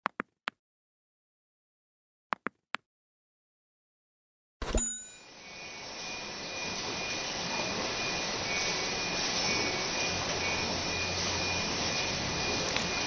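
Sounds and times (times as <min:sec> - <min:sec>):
faint high whine: 0:04.6 - 0:13.0
enclosure fans droning: 0:05.4 - 0:13.0
production machine running: 0:06.3 - 0:13.0.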